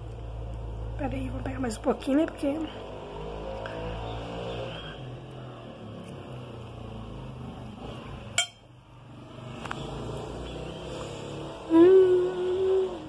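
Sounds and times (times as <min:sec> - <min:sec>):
sharp clink: 0:08.4 - 0:08.7.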